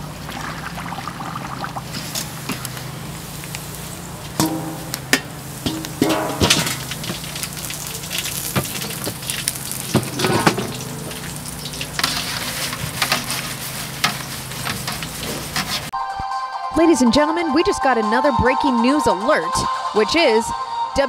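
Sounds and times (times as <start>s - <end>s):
frying sizzle: 0.0s - 16.0s
metal utensil clinking and scraping: 4.2s - 15.9s.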